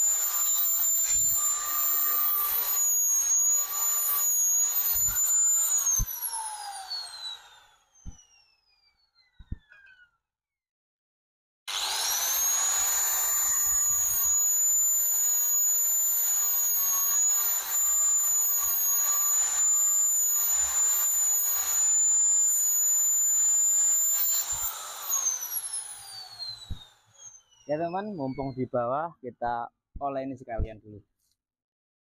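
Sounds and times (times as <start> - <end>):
angle grinder grinding steel: 0.0 - 8.3, 11.7 - 28.6.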